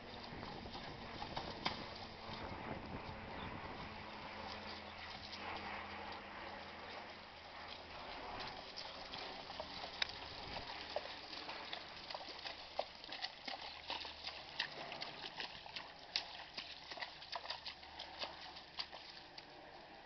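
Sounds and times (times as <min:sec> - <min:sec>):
hooves splashing through stream: 0:00.0 - 0:20.0.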